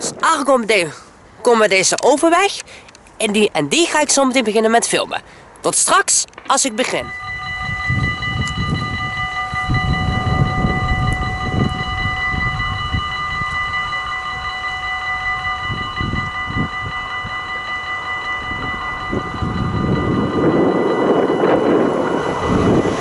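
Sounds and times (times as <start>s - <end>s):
level crossing bell ringing: 6.5s - 23.0s
low rumble: 7.0s - 23.0s.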